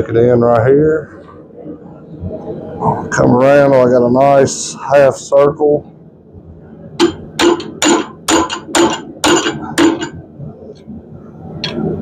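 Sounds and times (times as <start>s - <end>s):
hammer striking hot steel: 7.0s - 10.2s.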